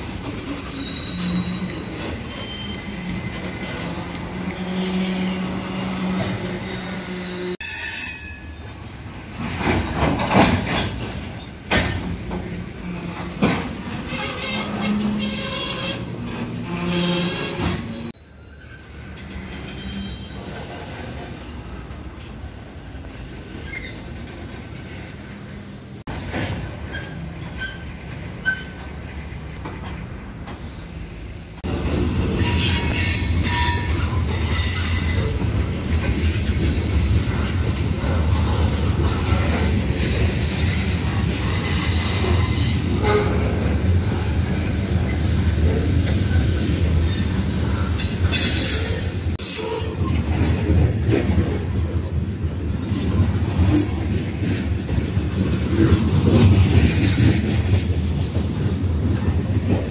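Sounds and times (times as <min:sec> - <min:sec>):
freight train rolling past: 0:00.0 - 0:59.9
wheel squeals: 0:00.5 - 0:09.1, 0:14.0 - 0:21.3, 0:22.8 - 0:24.7.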